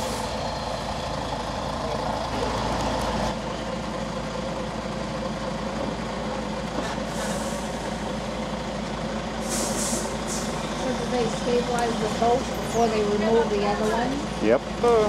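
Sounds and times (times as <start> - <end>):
diesel truck engine running: 0.0 - 15.0
short air hiss: 9.4 - 10.5.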